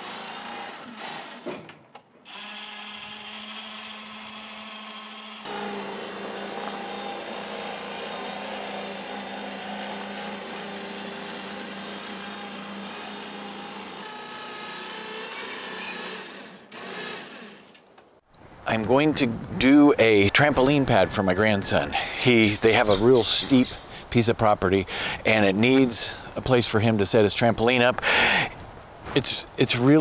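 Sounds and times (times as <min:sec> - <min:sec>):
electric motor whining: 0:00.0 - 0:01.5, 0:02.3 - 0:17.8.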